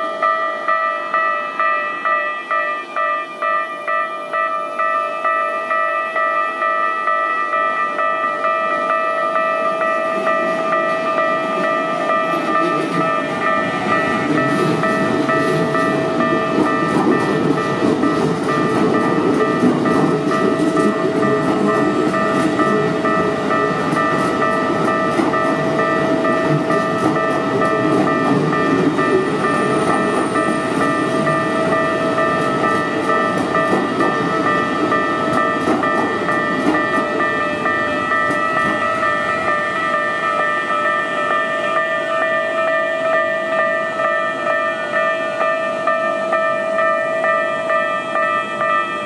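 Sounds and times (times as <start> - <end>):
electric train passing: 0.0 - 49.0
level crossing warning bell: 0.0 - 49.0.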